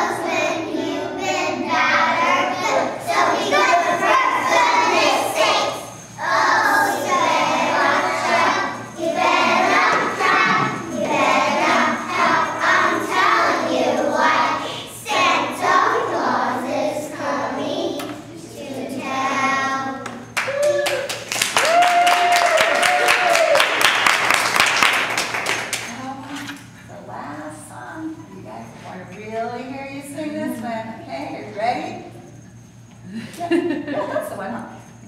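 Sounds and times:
young children singing in chorus: 0.0s - 20.1s.

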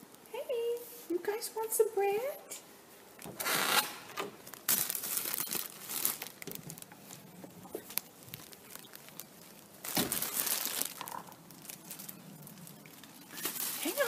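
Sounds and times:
plastic bag crinkling and rustling: 3.2s - 14.0s.

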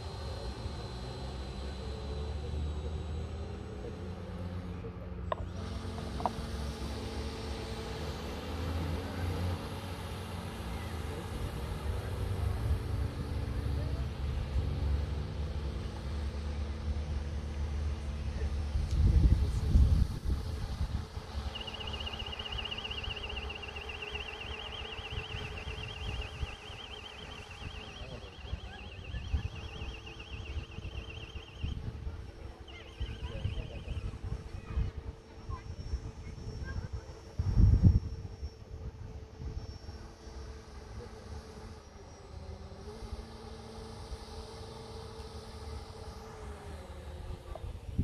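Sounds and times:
model boat motors humming: 0.0s - 48.0s
wind rumble on microphone: 18.4s - 21.4s, 25.1s - 39.8s, 47.2s - 48.0s
warbling electronic siren tone: 21.3s - 34.2s.

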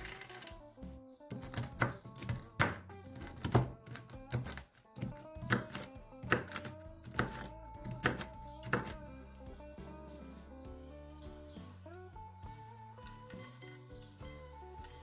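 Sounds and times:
background music: 0.0s - 15.0s
knife chopping on wooden board: 1.3s - 9.0s.

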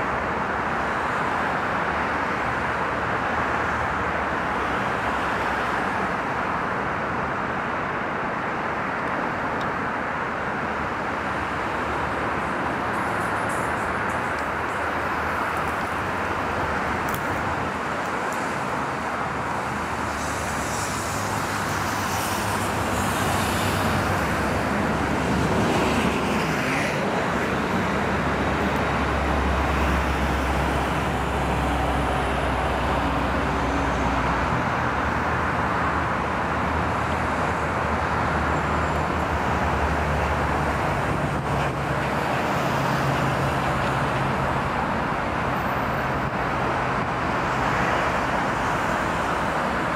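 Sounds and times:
vehicle rumbling hiss: 17.9s - 35.8s.

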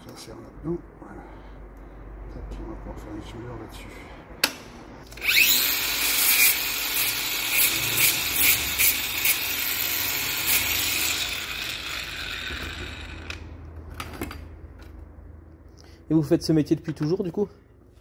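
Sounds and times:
power tool grinding metal: 5.2s - 13.3s.

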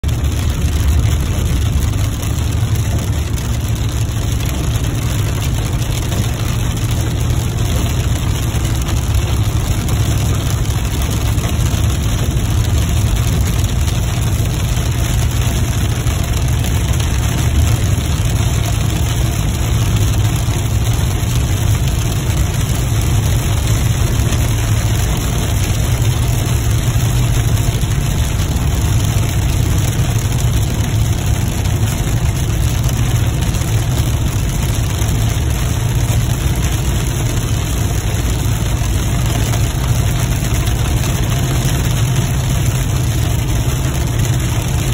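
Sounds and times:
vehicle interior road rumble: 0.0s - 44.9s.

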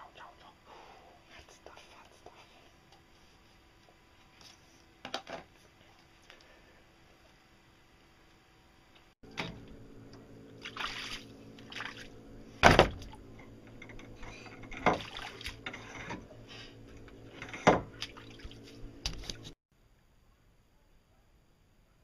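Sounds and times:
steady hum: 0.0s - 19.9s
plastic poles knocking and rattling: 13.8s - 16.3s, 16.9s - 18.2s.

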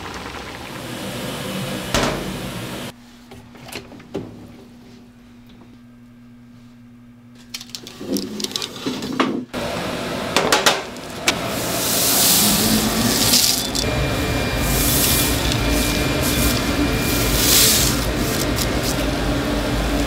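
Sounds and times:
nuts sliding off a tray: 11.8s - 13.9s, 14.8s - 19.0s.

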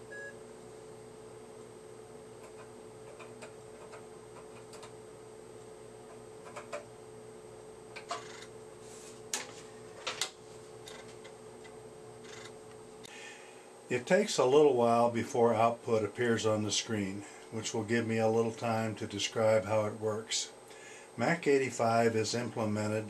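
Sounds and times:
computer hum: 0.0s - 23.0s.

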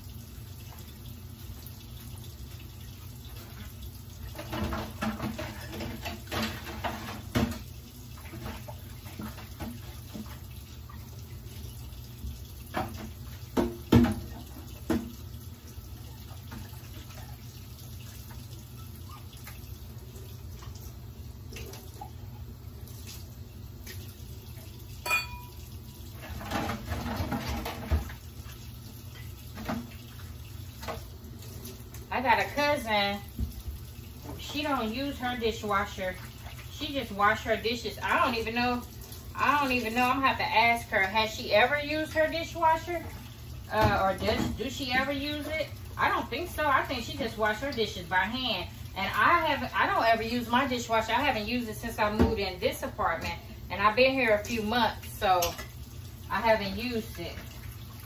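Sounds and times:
dishes clinking and knocking: 25.0s - 25.6s.

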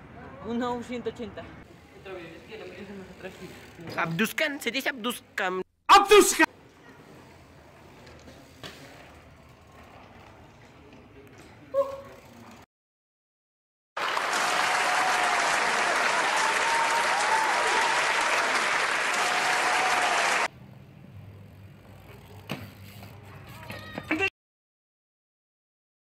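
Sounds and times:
large crowd applauding: 14.0s - 20.5s.

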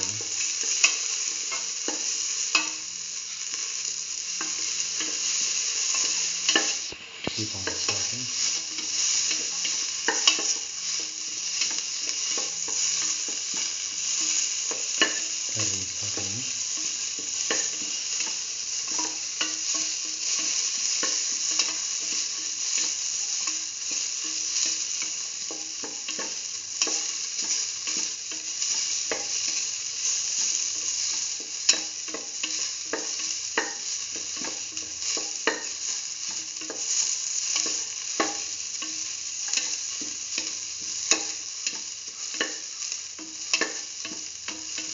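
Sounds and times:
onions sizzling in hot oil: 0.0s - 44.9s
spatula scraping and tapping pan: 8.4s - 15.3s, 16.8s - 44.9s.

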